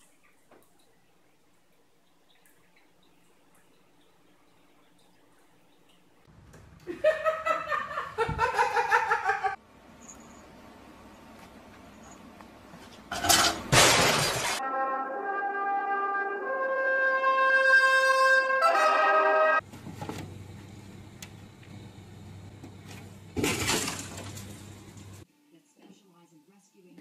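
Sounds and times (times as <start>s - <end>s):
loud crash: 13.7s - 14.6s
brass music held notes: 14.6s - 19.6s.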